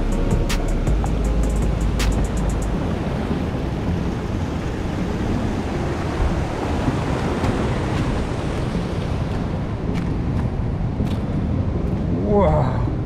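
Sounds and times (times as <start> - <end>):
wind rumbling on microphone: 0.0 - 13.0
surf rushing through rocks: 1.8 - 10.6.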